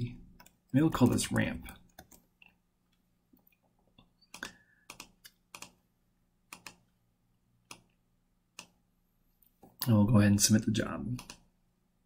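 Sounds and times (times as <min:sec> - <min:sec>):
computer mouse and keyboard clicks: 0:00.4 - 0:05.8, 0:06.5 - 0:06.8, 0:07.7 - 0:08.0, 0:08.6 - 0:08.8, 0:11.2 - 0:11.5.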